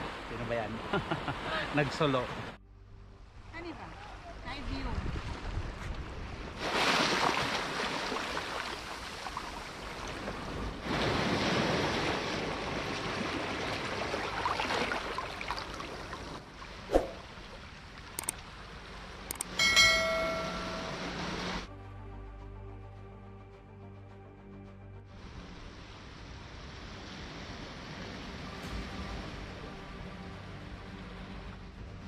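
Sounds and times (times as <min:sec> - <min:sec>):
waves washing over sand: 0:00.0 - 0:02.6, 0:04.8 - 0:17.4, 0:25.2 - 0:31.6
clicks: 0:18.2 - 0:18.4
ringing electronic tone: 0:19.6 - 0:21.2.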